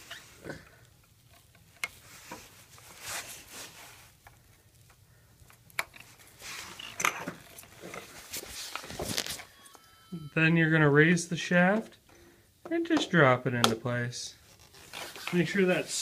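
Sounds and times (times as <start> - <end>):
rustling handling noise: 1.1 - 10.1, 12.9 - 16.0
wire connectors clicking: 4.2 - 6.2.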